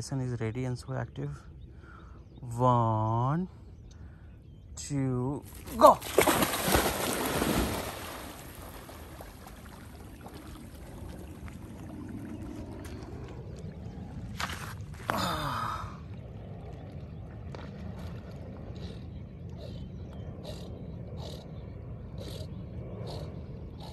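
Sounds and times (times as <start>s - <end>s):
water and wind rushing: 5.4s - 23.9s
dog splashing into water: 5.5s - 11.6s.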